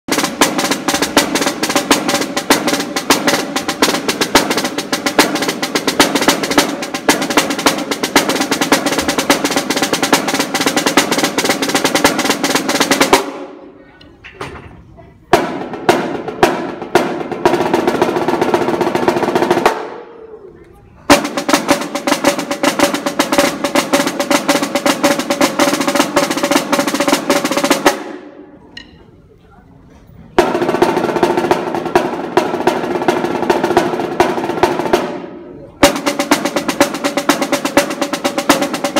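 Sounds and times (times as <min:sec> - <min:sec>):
snare drum rolls: 0:00.1 - 0:13.6, 0:15.3 - 0:20.5, 0:21.1 - 0:29.0, 0:30.4 - 0:38.9.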